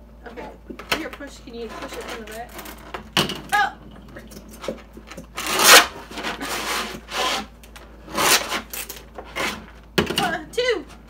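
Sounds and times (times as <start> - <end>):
plastic pens rubbing against holder: 1.4 - 2.9.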